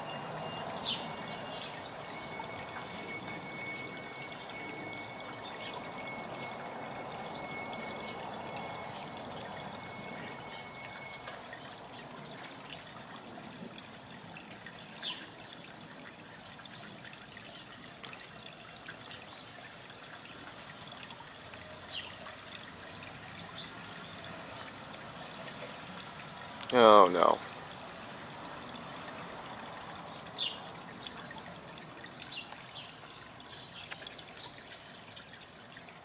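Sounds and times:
bird chirp: 0.0s - 6.2s, 15.0s - 15.3s, 30.4s - 30.7s, 32.2s - 35.0s
water trickling: 0.0s - 36.0s.

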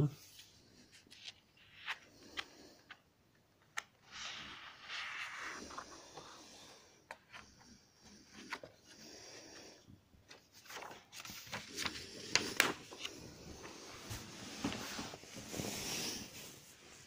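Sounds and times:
book pages rustling: 0.3s - 3.0s, 3.6s - 9.0s, 10.2s - 17.0s
sharp paper crackles: 10.5s - 13.1s.

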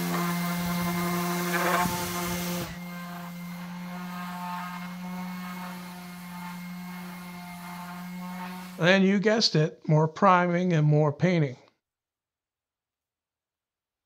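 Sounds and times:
orbital sander motor hum: 0.0s - 8.8s
sanding hiss on wood: 0.0s - 8.8s.

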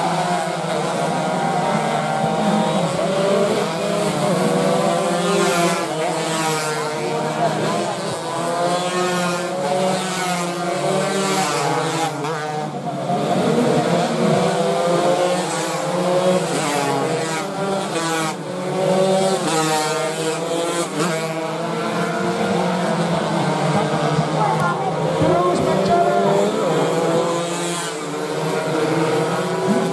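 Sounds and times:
racing motorcycles revving past: 0.0s - 29.9s.

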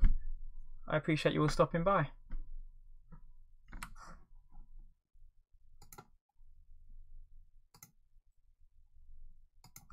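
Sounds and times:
computer mouse clicks: 3.7s - 4.0s, 5.8s - 6.2s, 7.7s - 8.0s, 9.6s - 9.9s.

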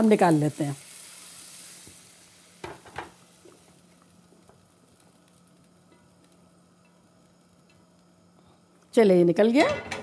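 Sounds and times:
food sizzling in a frying pan: 0.0s - 10.0s.

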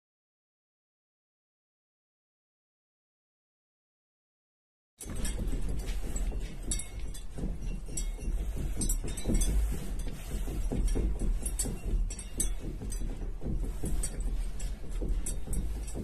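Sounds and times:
chandelier crystals clinking and rattling: 5.0s - 16.0s
steady low rumble: 5.1s - 16.0s.

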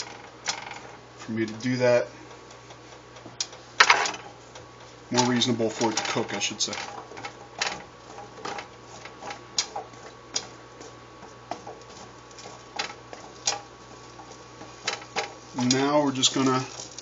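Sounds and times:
faint steady hiss: 13.2s - 17.0s.

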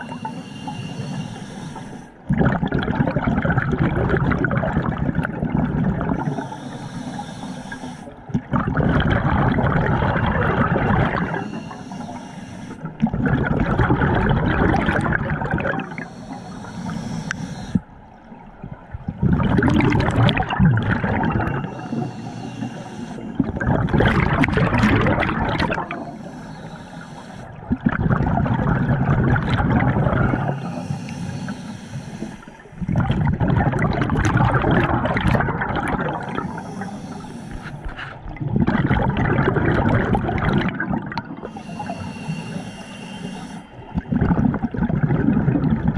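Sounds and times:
regulator hiss: 0.0s - 2.1s, 6.2s - 8.1s, 11.2s - 12.9s, 15.8s - 17.8s, 21.6s - 23.4s, 25.8s - 27.6s, 30.2s - 32.7s, 36.2s - 37.9s, 41.5s - 43.8s
exhaled bubbles rushing: 2.3s - 6.4s, 8.3s - 11.6s, 12.8s - 16.1s, 18.6s - 22.1s, 22.7s - 26.1s, 27.6s - 30.9s, 32.7s - 36.8s, 37.5s - 41.6s, 43.8s - 45.9s.

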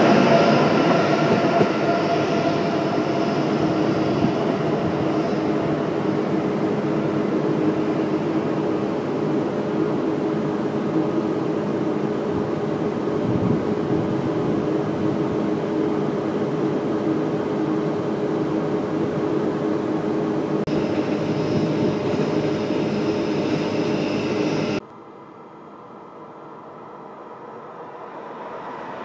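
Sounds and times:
high-pitched whine: 0.0s - 16.0s, 20.3s - 24.8s
approaching train rumble: 0.0s - 29.0s
train fans humming: 0.0s - 29.0s.

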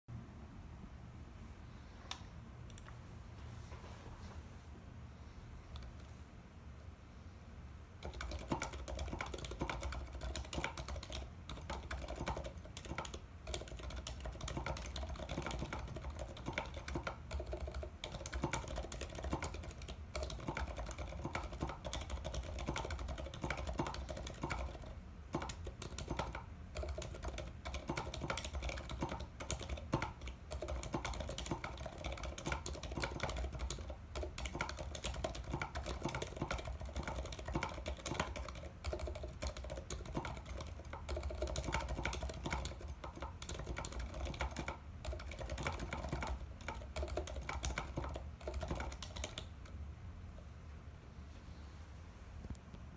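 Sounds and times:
fast typing on mechanical keyboard: 8.0s - 49.8s.

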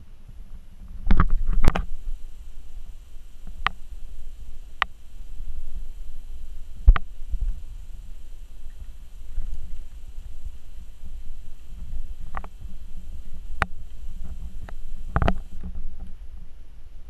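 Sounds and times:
low rumbling handling noise: 0.5s - 16.6s.

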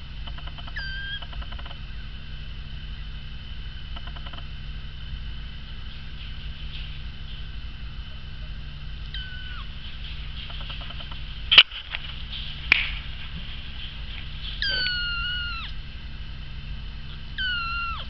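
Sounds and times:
kitten mewing: 0.7s - 1.2s, 9.1s - 9.7s, 14.6s - 15.8s, 17.1s - 18.0s.

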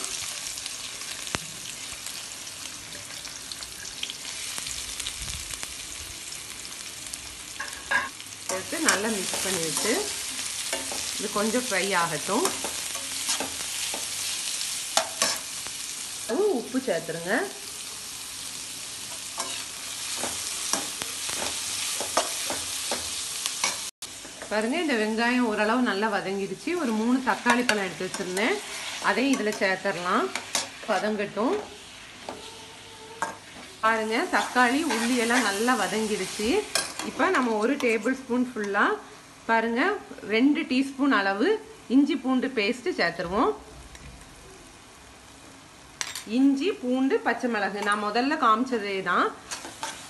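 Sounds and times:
onions sizzling in hot oil: 0.0s - 43.9s, 44.6s - 50.0s.

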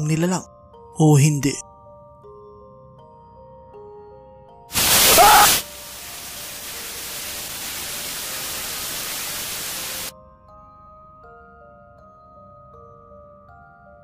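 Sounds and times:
soft background music: 0.0s - 4.8s, 5.6s - 14.0s
tv static hiss: 4.7s - 10.1s.

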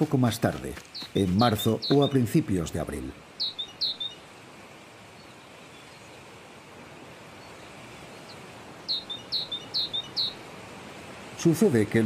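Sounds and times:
faint outdoor background: 0.0s - 12.0s
small bird chirping: 0.8s - 2.3s, 3.4s - 4.3s, 7.4s - 10.5s.

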